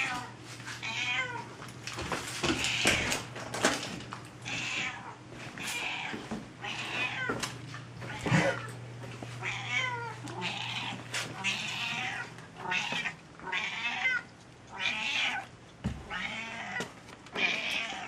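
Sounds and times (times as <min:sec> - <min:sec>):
cat meowing: 0:00.0 - 0:01.5, 0:04.5 - 0:07.4, 0:09.4 - 0:18.0.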